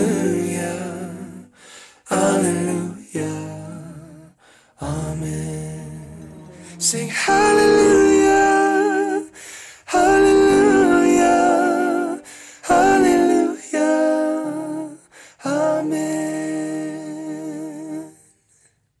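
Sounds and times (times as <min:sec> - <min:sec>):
soft accompaniment: 0:06.1 - 0:09.2, 0:10.0 - 0:13.6
long sung notes with vibrato: 0:06.1 - 0:09.3, 0:09.9 - 0:14.0.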